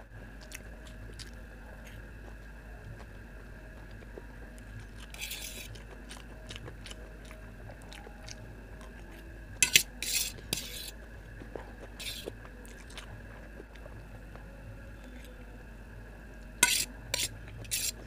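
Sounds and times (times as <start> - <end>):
chewing noodles: 0.2 - 15.4
fork scraping a metal plate: 5.1 - 5.7, 9.6 - 11.0, 12.0 - 12.3, 16.6 - 18.0.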